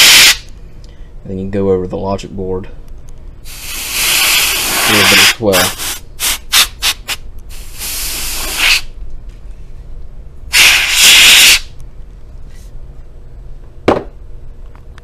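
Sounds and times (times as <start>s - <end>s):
canned air spraying: 0.0s - 0.4s, 3.4s - 8.9s, 10.5s - 11.7s.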